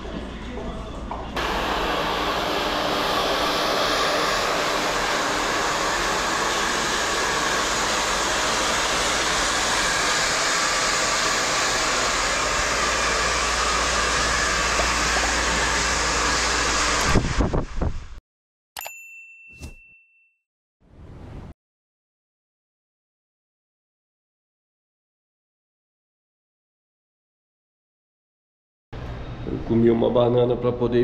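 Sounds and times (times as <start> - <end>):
hair dryer blowing: 1.4 - 18.2
short bright ding: 18.8 - 20.4.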